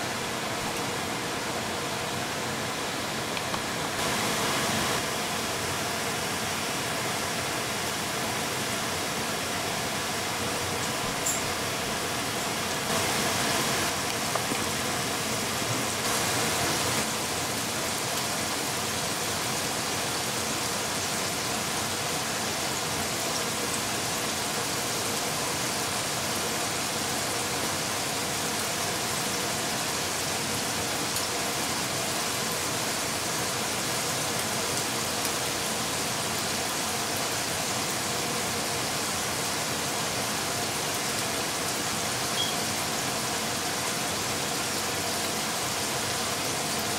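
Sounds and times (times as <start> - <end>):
chicken frying in hot oil: 42.3 - 42.8.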